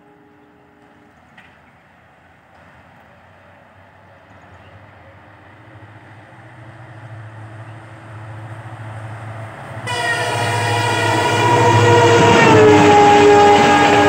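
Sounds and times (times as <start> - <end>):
train horn chord: 0.0 - 1.0, 9.8 - 14.0
diesel locomotive engine rumble: 0.0 - 14.0.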